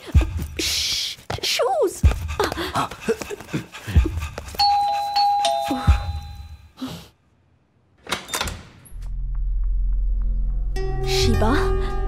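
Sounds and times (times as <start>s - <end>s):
electronic doorbell chiming: 4.6s - 6.6s.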